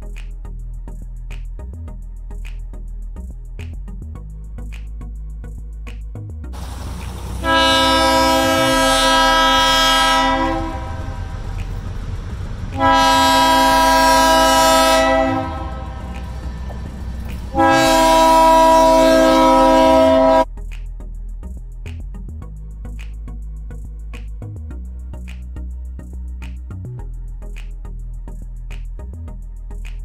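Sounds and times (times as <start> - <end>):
locomotive air horn blasts: 6.6 - 11.7, 12.6 - 16.7, 17.4 - 20.4
passing train rumble: 6.6 - 20.4.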